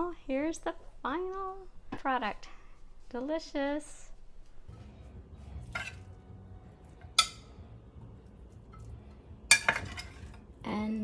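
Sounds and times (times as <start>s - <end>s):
metal spatula clinking on glass dish: 7.0s - 7.5s, 9.5s - 10.3s.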